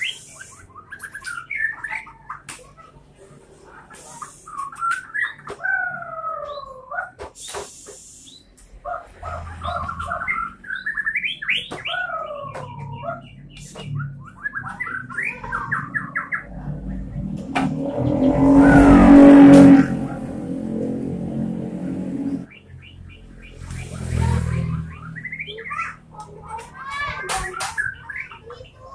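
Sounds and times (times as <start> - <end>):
passing motor vehicle: 8.8 - 11.1, 12.3 - 26.8.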